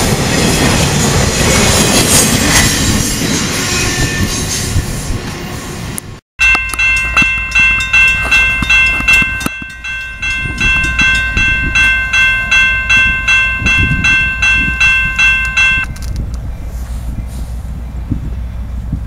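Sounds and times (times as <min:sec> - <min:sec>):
crossing warning bell ringing: 0:06.4 - 0:16.2.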